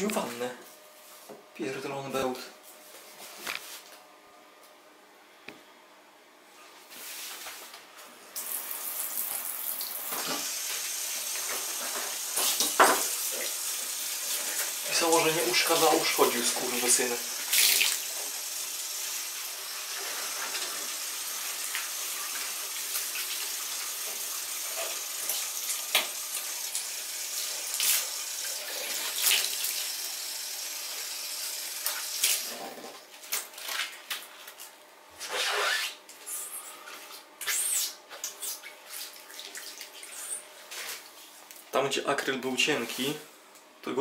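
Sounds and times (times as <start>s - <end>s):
water running into bathtub: 8.4s - 32.8s, 38.2s - 40.4s.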